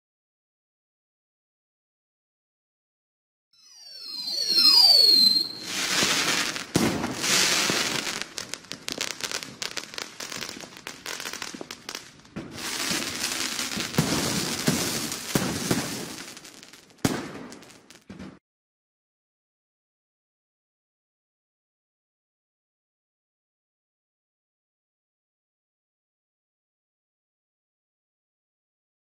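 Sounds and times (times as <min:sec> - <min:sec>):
firework whistle sliding down: 0:03.6 - 0:11.8, 0:12.6 - 0:16.8
fireworks bursting and crackling: 0:04.0 - 0:18.4
firework bang: 0:04.8 - 0:18.4.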